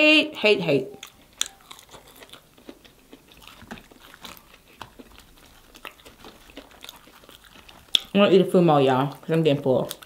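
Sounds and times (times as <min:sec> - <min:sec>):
chewing clicks: 0:01.0 - 0:08.2, 0:09.0 - 0:10.0.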